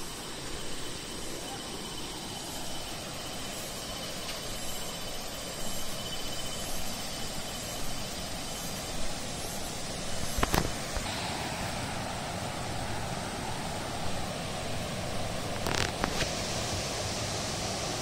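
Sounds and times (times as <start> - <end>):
water rushing over rapids: 8.2 - 18.0.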